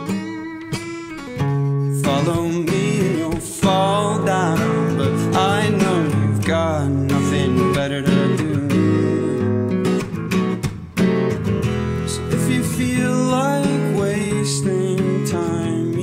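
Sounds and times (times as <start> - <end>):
strummed acoustic guitar: 0.0 - 16.0
man singing: 1.9 - 10.1, 12.0 - 16.0.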